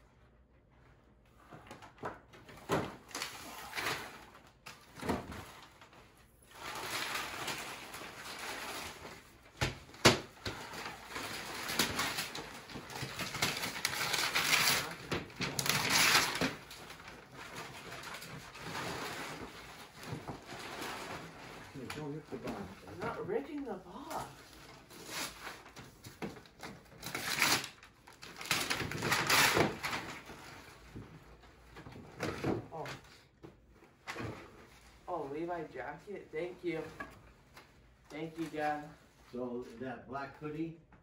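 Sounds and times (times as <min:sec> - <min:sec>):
wrapping paper crinkling and tearing: 0:03.0 - 0:30.8.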